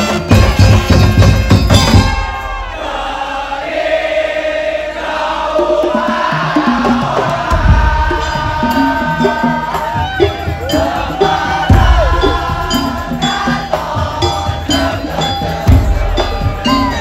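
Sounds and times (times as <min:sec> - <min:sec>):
parade drums and percussion: 0:00.0 - 0:04.0, 0:05.1 - 0:17.0
bass drum: 0:00.2 - 0:02.5, 0:06.0 - 0:14.9
voices chanting: 0:02.0 - 0:17.0.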